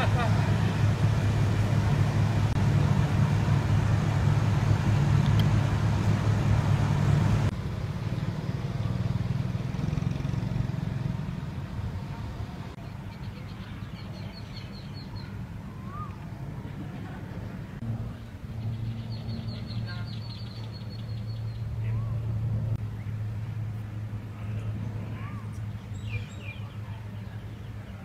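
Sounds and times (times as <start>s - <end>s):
car engine humming: 0.0s - 12.8s.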